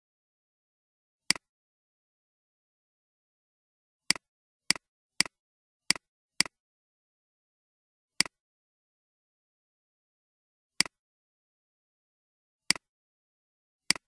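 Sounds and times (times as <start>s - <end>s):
computer mouse clicks: 8.2s - 8.4s, 10.8s - 11.0s, 12.7s - 12.9s.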